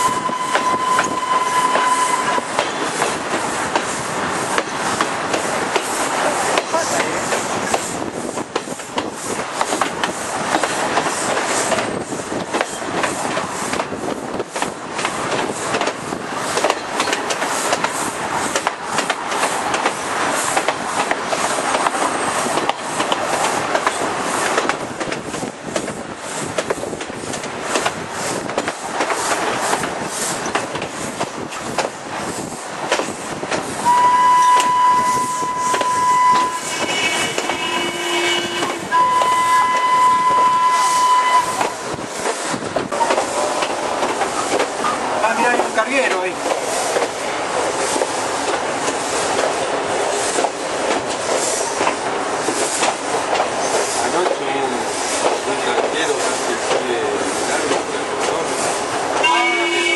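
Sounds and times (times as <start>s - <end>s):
steam locomotive whistle: 0.0s - 2.6s, 33.8s - 41.9s, 59.2s - 59.9s
train rushing at speed: 0.0s - 59.9s
wheels clattering over rails: 41.5s - 59.9s.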